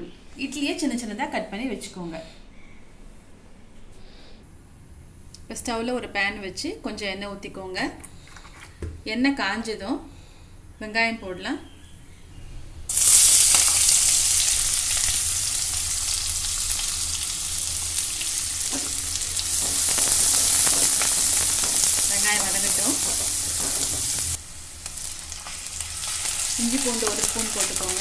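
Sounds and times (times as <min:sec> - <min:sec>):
onions sizzling in hot oil: 0:12.9 - 0:28.0.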